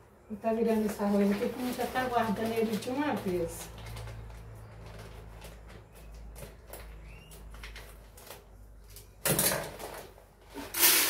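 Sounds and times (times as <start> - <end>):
plastic bag rustling: 0.4 - 9.0.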